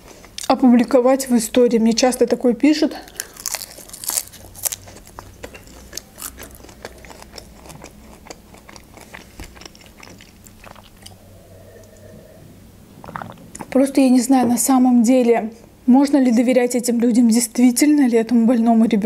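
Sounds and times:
crunchy chewing on vegetables: 0:03.0 - 0:12.4.

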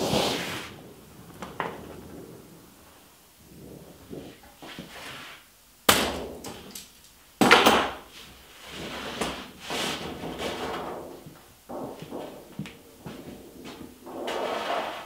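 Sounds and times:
metal sheet popping: 0:00.0 - 0:03.0, 0:05.8 - 0:08.1, 0:08.8 - 0:15.0
metal sheet rubbing and rattling: 0:08.5 - 0:15.0.

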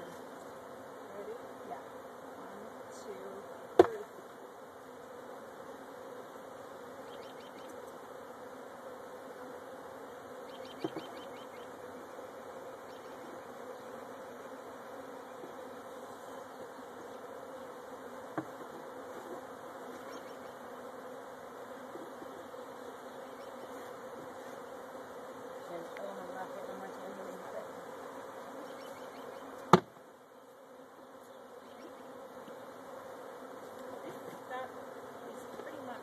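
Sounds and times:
honeybees buzzing: 0:00.0 - 0:36.0
sharp knocks: 0:29.7 - 0:30.0.

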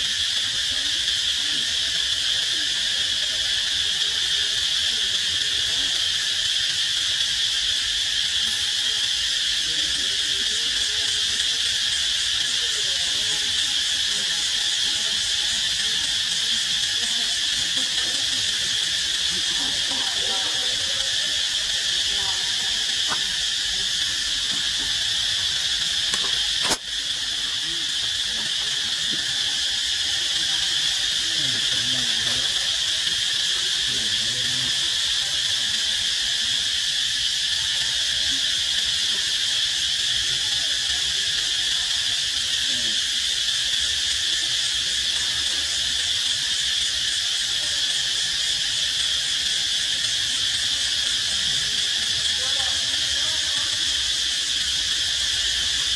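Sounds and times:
insects droning: 0:00.0 - 0:55.9
sharp click: 0:26.1 - 0:26.9.

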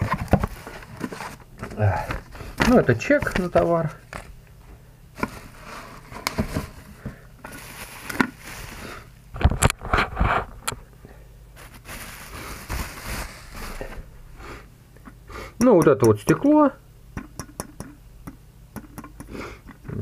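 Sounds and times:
bubble wrap rustling and crackling: 0:05.2 - 0:10.6, 0:11.6 - 0:14.2.

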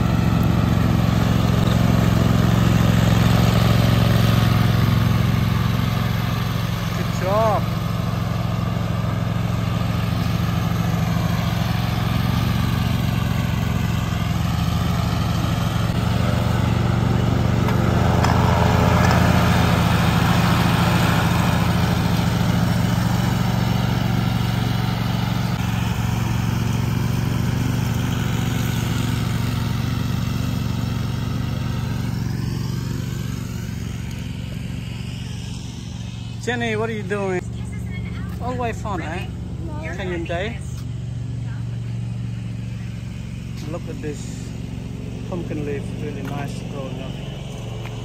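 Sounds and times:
riding mower engine: 0:00.0 - 0:48.0.

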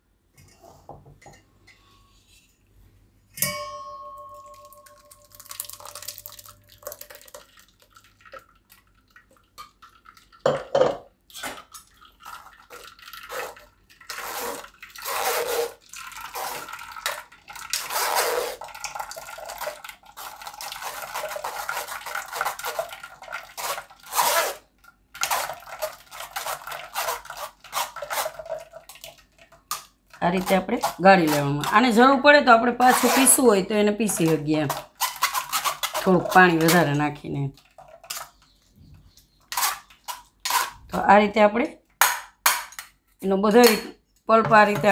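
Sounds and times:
juice trickling and dripping: 0:04.5 - 0:10.5, 0:11.1 - 0:30.6
spoon scraping metal strainer: 0:12.3 - 0:24.6, 0:25.2 - 0:28.6, 0:30.2 - 0:32.1, 0:32.7 - 0:37.0, 0:39.4 - 0:40.9.

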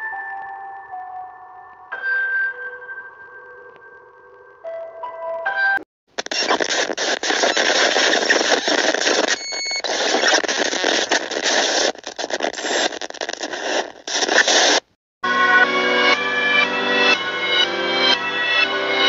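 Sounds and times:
harsh static noise: 0:06.1 - 0:15.0.

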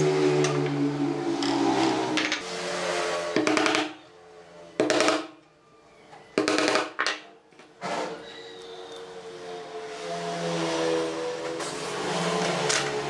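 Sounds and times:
hammer driving nails into wood: 0:04.8 - 0:05.3, 0:06.4 - 0:07.2.

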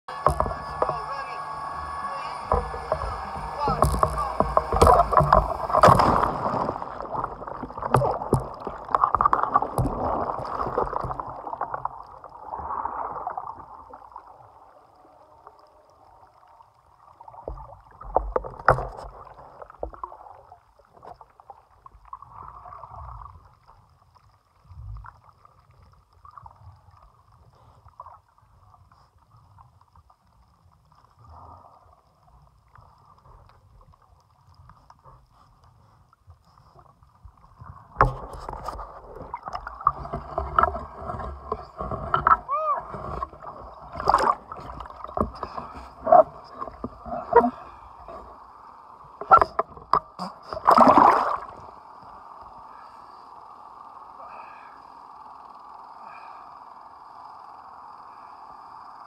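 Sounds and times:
low underwater thumps: 0:00.1 - 0:11.4
underwater bubbles: 0:00.1 - 0:59.0.

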